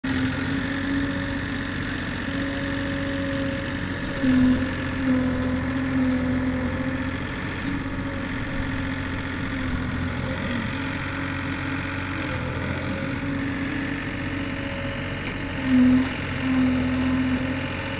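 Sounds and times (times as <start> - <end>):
excavator diesel engine running: 0.0 - 17.9
pitched tone over engine rumble: 0.0 - 17.9.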